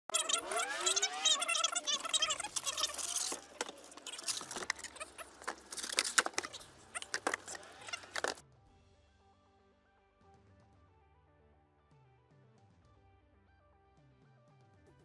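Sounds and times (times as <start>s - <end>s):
squeaky cardboard rubbing: 0.0s - 8.4s
cardboard rustling and scraping: 0.4s - 8.4s.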